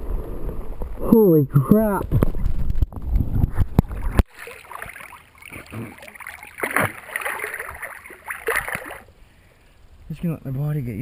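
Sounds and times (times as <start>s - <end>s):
water sloshing and splashing: 3.5s - 9.1s.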